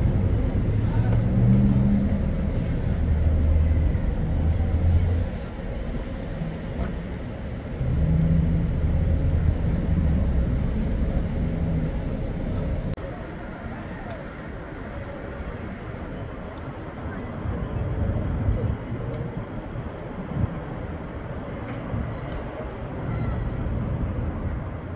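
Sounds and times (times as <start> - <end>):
vehicle engines rumbling: 0.0 - 24.9.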